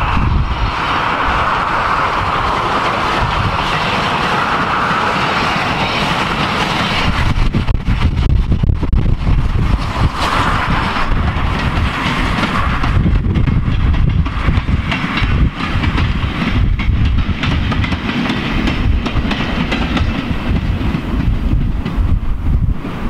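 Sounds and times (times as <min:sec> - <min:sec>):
train wheels clickety-clack: 0:00.0 - 0:23.0
wind rumbling on microphone: 0:00.0 - 0:23.0.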